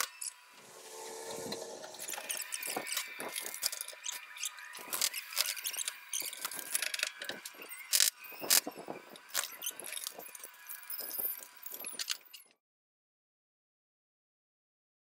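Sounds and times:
high squeaky chirps: 0:02.0 - 0:11.6.

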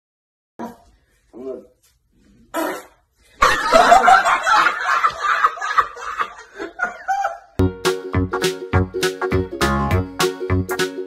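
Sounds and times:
man laughing loudly: 0:03.4 - 0:07.6.

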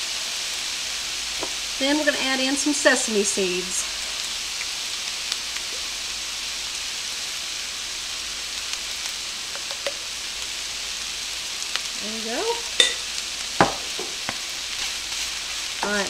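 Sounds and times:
rice sizzling in a skillet: 0:00.0 - 0:16.0
sharp knocks: 0:13.6 - 0:14.2.

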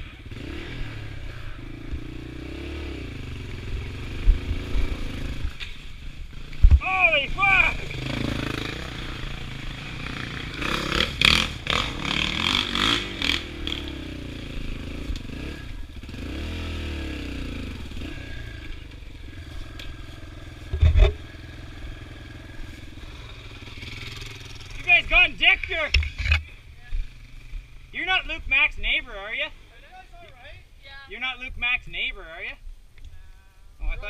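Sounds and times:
dirt bike engine revving: 0:00.0 - 0:26.3
clattering and scraping: 0:20.6 - 0:21.3, 0:25.6 - 0:26.5.

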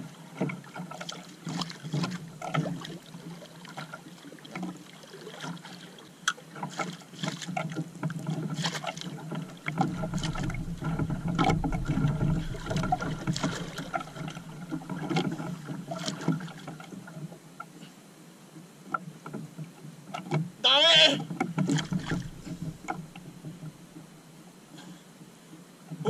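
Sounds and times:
water lapping against boat hull: 0:00.0 - 0:18.0, 0:18.8 - 0:24.9
deep rumble: 0:09.8 - 0:15.2, 0:22.0 - 0:24.0.

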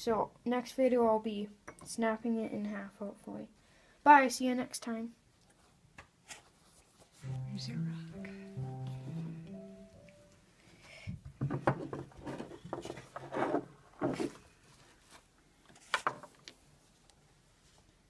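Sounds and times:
objects knocking on wooden desk: 0:11.2 - 0:12.9.

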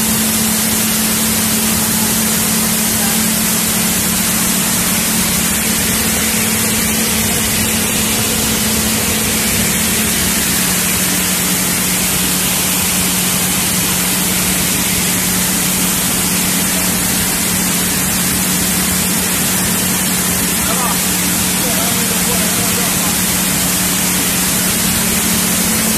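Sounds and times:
low motor hum: 0:00.0 - 0:25.9
machinery rushing noise: 0:00.0 - 0:25.9.

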